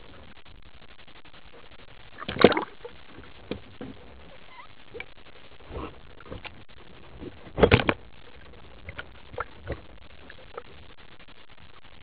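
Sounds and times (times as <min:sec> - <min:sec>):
splashing bubbling rush: 0:02.1 - 0:04.0, 0:04.9 - 0:10.9
underwater handling noise: 0:02.1 - 0:10.8.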